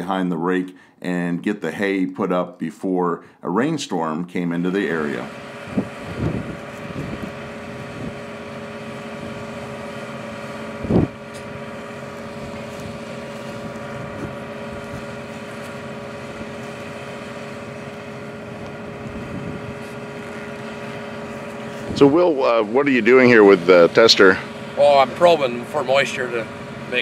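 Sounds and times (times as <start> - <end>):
tractor engine droning: 4.7 - 27.0.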